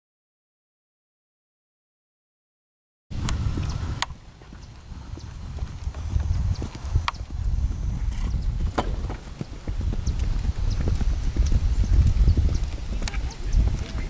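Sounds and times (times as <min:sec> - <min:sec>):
horse hoofbeats on sand: 0:03.1 - 0:14.0.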